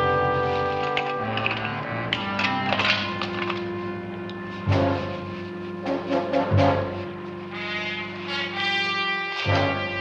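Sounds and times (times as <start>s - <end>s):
tense orchestral music: 0.0s - 10.0s
loud low orchestral accent: 1.8s - 8.7s.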